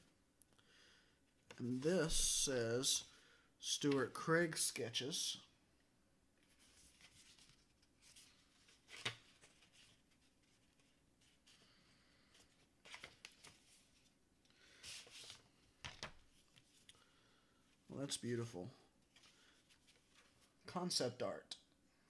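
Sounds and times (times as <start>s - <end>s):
paper pages rustling: 6.4s - 11.7s, 12.3s - 14.1s, 14.8s - 16.9s, 19.1s - 20.6s.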